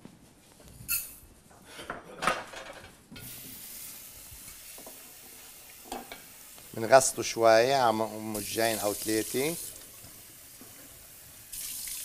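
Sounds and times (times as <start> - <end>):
steady hiss: 3.2 - 12.0.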